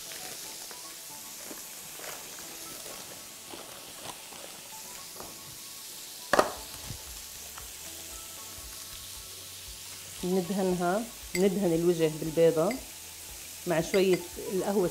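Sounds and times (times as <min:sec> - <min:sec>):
baking paper rustling and crinkling: 0:00.0 - 0:05.6
steady hiss: 0:00.0 - 0:14.9.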